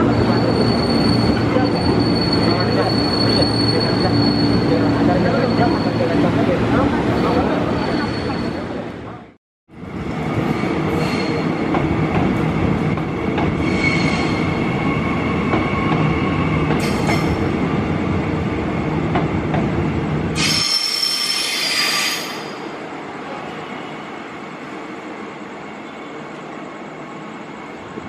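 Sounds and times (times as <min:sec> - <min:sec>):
train wheels rumbling on rail: 0:00.0 - 0:28.0
high-pitched wheel squeal: 0:00.2 - 0:06.2, 0:13.6 - 0:14.5, 0:20.4 - 0:22.6.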